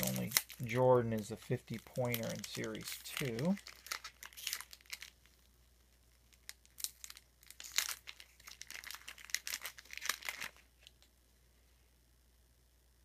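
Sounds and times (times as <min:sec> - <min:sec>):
wrapper crinkling and tearing: 0:00.0 - 0:05.5, 0:06.2 - 0:11.1.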